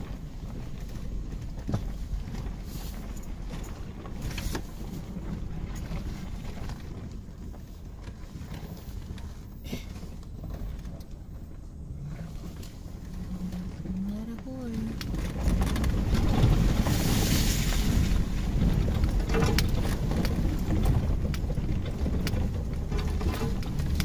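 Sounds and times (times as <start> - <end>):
engine and tyre rumble: 0.0 - 24.0
truck knocks and taps: 18.4 - 24.0.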